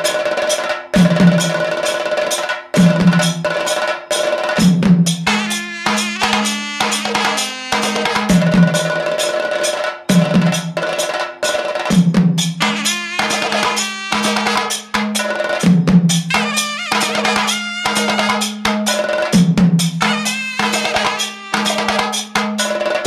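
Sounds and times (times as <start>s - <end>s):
fast drum strokes: 0.0s - 23.0s
drum tone sliding down: 4.6s - 8.9s, 12.6s - 18.8s.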